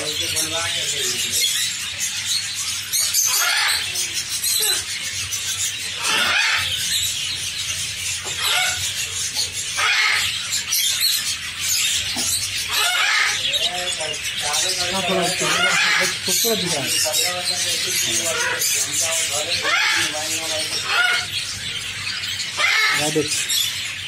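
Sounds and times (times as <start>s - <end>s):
small birds chattering: 0.0s - 24.0s
animals shrill squealing: 3.2s - 4.9s, 5.9s - 7.0s, 9.7s - 10.7s, 12.7s - 13.5s, 14.8s - 17.0s, 17.6s - 21.4s, 22.4s - 23.2s.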